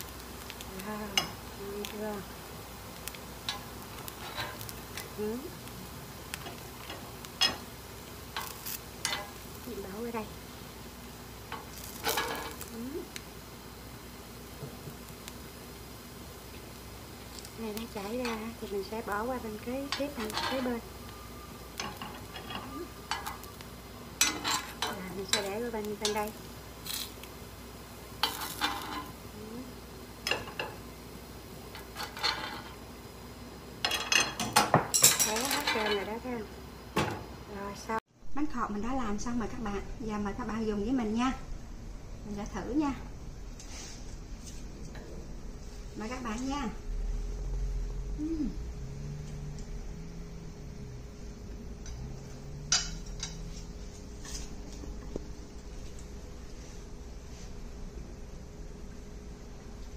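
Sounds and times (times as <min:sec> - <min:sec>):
faint frying sizzle: 0:00.0 - 0:59.9
metal spoon scraping a pan: 0:03.5 - 0:05.1, 0:08.4 - 0:09.4, 0:21.8 - 0:23.5, 0:24.2 - 0:26.3
person humming while chewing: 0:48.1 - 0:48.7.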